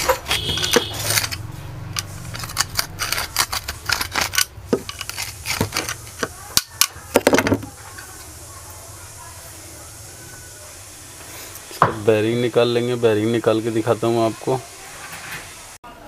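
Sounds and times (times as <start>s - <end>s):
pliers clicking and scraping metal: 0.0s - 7.0s.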